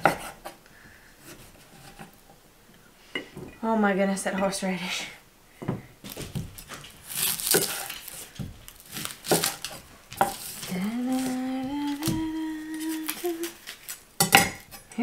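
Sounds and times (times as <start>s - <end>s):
knife chopping onion on wooden board: 0.0s - 0.6s, 8.4s - 12.4s
woman humming: 10.6s - 13.7s.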